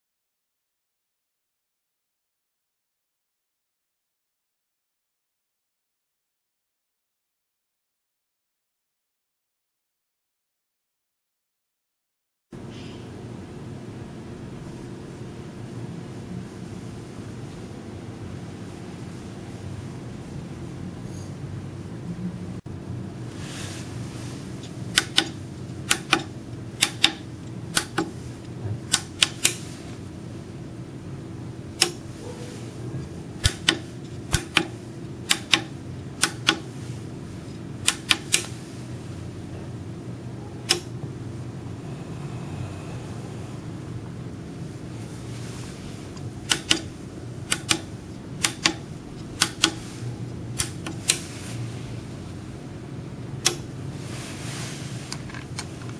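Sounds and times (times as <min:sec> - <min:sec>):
steady low hum: 0:12.6 - 0:55.9
keypad buttons clicking: 0:24.9 - 0:28.2, 0:28.8 - 0:29.7, 0:33.4 - 0:36.7, 0:37.8 - 0:38.6, 0:46.4 - 0:46.9, 0:47.5 - 0:50.0.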